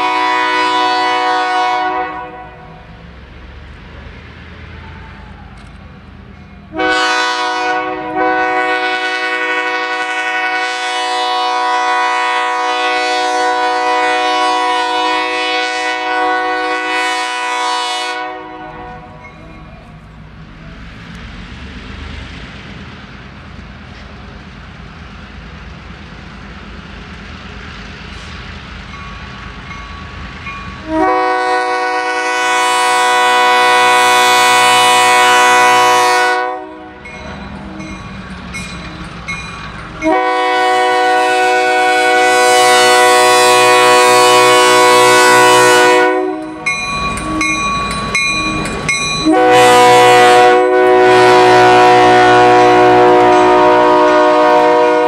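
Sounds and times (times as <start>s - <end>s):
locomotive air horn blasts: 0.0s - 2.9s, 6.7s - 19.2s, 30.8s - 37.1s, 40.0s - 46.7s, 49.2s - 55.0s
locomotive engine rumble: 0.0s - 55.0s.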